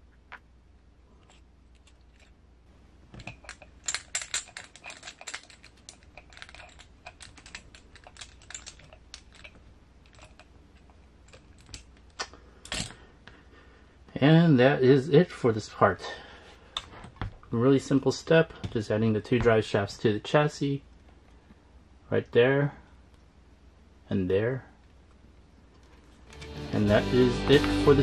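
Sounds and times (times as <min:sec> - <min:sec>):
parts being handled: 0:01.2 - 0:13.4, 0:16.4 - 0:17.6, 0:18.5 - 0:19.8.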